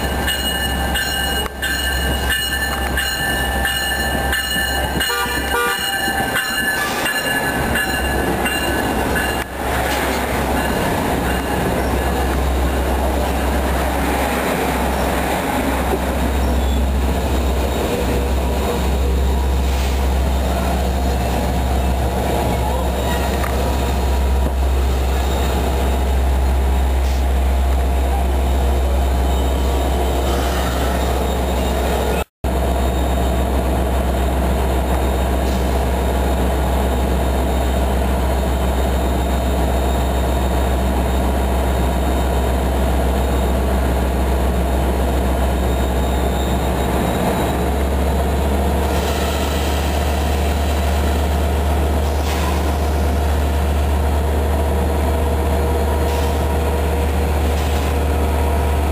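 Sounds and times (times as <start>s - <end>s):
train coaches rolling past: 0.0s - 58.9s.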